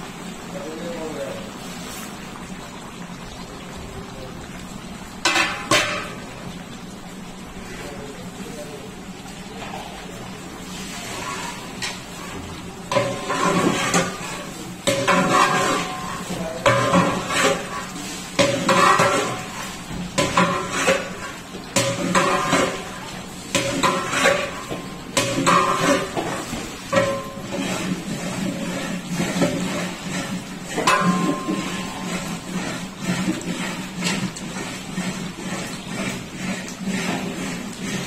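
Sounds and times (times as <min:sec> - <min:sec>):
ladle scraping metal pot: 0:10.7 - 0:38.0.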